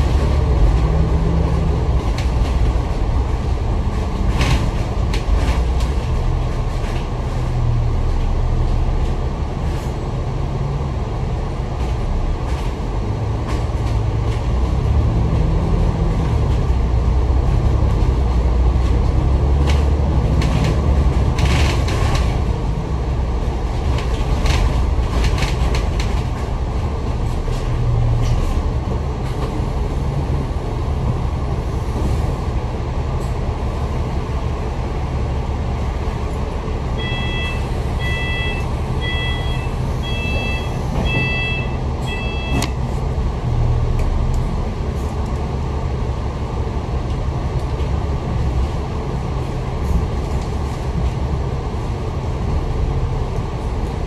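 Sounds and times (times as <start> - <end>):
bus engine and road rumble: 0.0 - 54.0
short electronic beeps: 37.0 - 42.8.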